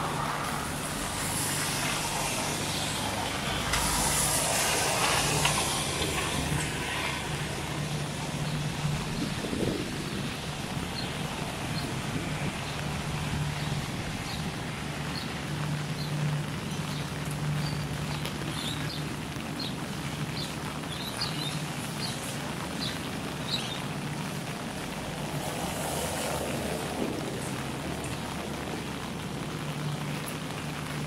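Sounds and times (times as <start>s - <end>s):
brief hiss: 1.3s - 6.3s.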